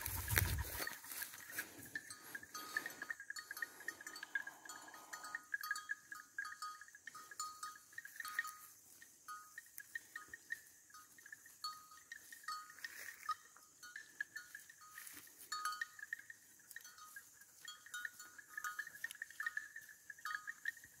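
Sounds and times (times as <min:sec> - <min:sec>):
cattle bells clanking: 0:00.0 - 0:21.0.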